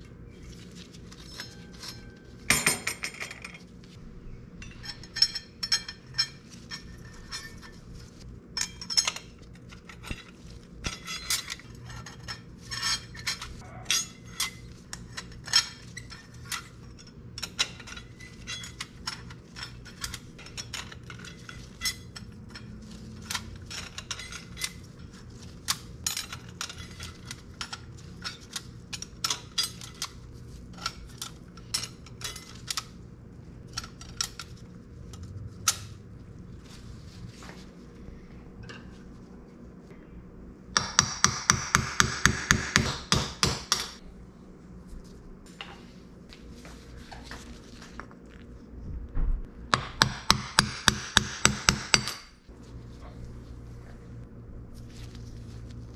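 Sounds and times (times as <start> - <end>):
metal parts and tools clinking: 0.5 - 3.8, 4.6 - 33.0, 33.6 - 36.0.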